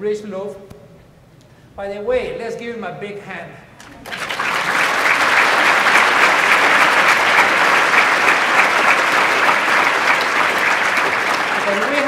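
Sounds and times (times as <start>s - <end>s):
audience applause: 3.8s - 12.0s.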